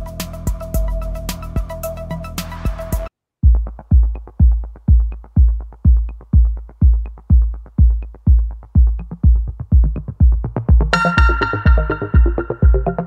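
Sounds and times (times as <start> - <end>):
electronic music: 0.0 - 13.0
heavy kick drum beat: 3.4 - 13.0.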